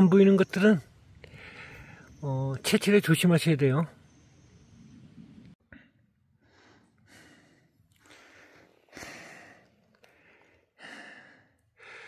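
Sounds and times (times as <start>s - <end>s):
person breathing softly: 1.2s - 2.1s, 5.7s - 12.0s.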